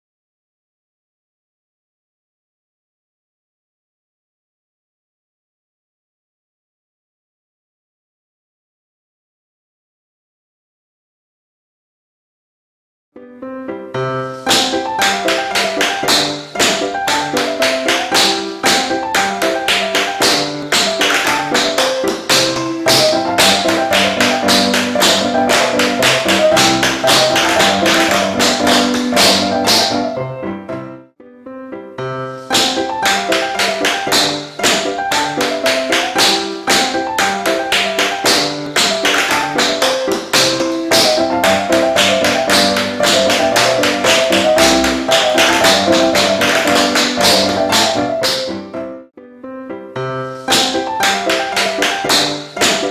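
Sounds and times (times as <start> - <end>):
backing music: 13.4 - 48.9
tap shoes on wooden floor: 14.4 - 30.1, 32.6 - 48.6, 50.5 - 52.9.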